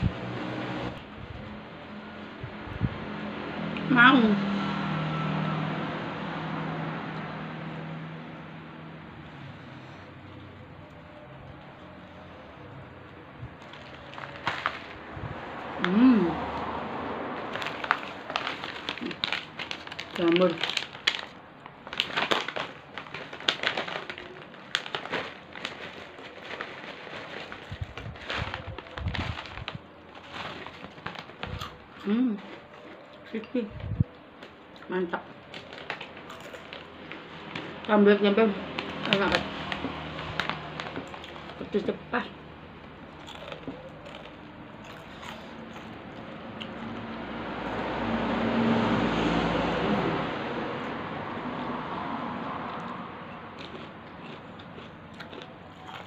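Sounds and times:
plastic bag crinkling: 13.6 - 15.2, 17.4 - 33.2, 35.4 - 38.0, 38.6 - 42.0
crisps crackling: 13.6 - 33.5, 34.3 - 48.0, 52.8 - 56.0.

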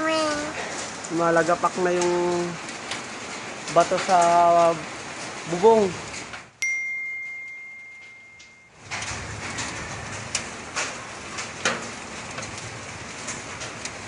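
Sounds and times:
rain on a roof: 0.0 - 14.0
steady high tone: 6.6 - 8.8.

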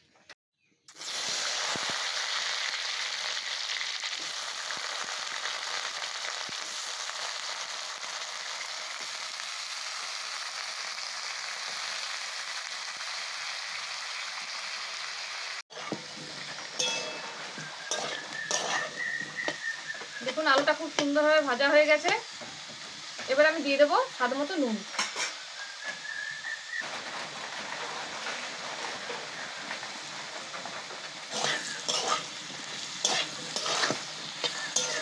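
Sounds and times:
potatoes sizzling in oil: 0.9 - 35.0
light clinks of stirring: 16.8 - 19.5.

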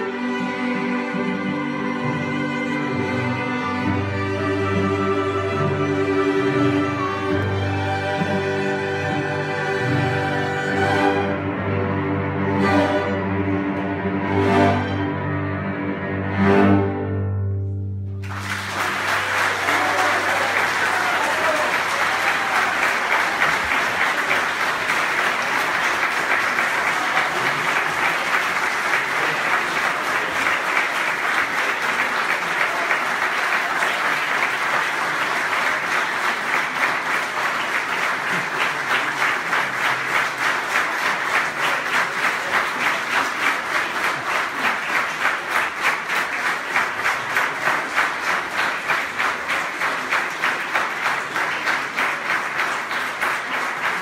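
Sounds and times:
audience applauding: 18.1 - 54.0
crowd clapping in rhythm: 18.1 - 54.0.

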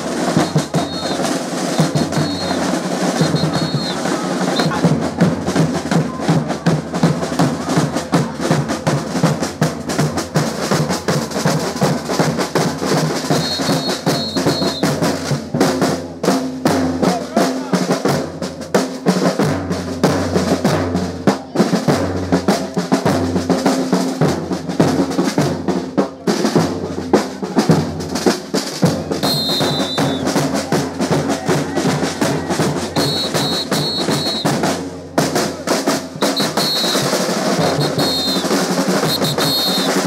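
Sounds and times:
bass drum beat: 0.0 - 18.4, 26.6 - 40.0
snare drum rolls: 0.0 - 40.0
short high-pitched tones: 0.4 - 4.8, 29.2 - 30.3, 33.0 - 34.5, 36.2 - 40.0.

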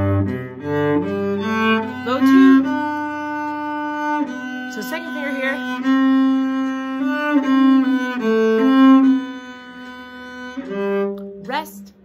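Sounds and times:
solo cello bowed notes: 0.0 - 12.0.

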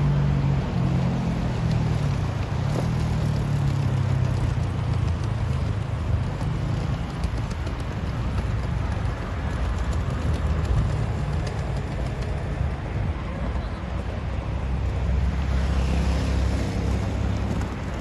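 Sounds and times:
car engines humming: 0.0 - 18.0.

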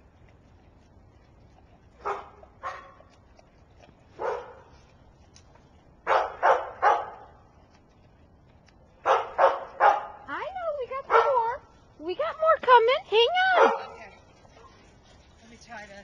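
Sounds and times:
dog barking: 2.0 - 3.1, 4.2 - 4.7, 6.0 - 7.3, 9.0 - 10.2, 11.1 - 11.5, 13.5 - 14.7.

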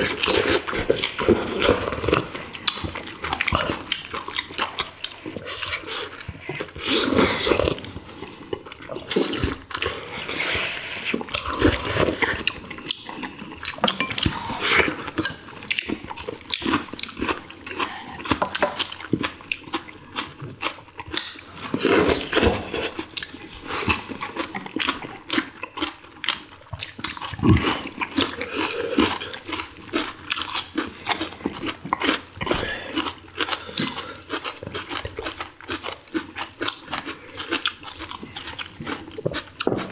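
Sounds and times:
people slurping broth: 0.0 - 3.9, 5.2 - 15.4
chewing food: 0.0 - 39.9.

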